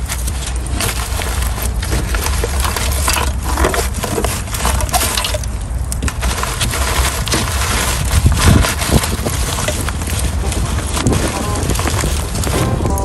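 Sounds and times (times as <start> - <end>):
charcoal clinking and shifting: 0.0 - 13.0
fire crackling: 0.0 - 13.0
low rumble: 7.7 - 13.0.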